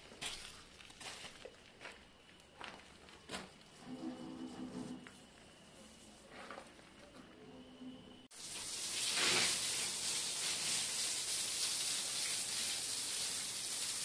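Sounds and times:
hose spraying water on concrete: 0:08.3 - 0:14.0.

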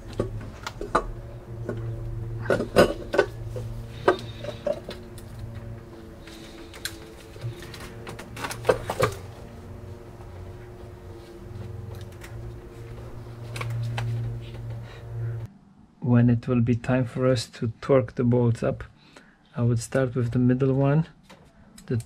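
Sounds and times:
low hum: 0:00.0 - 0:17.3.

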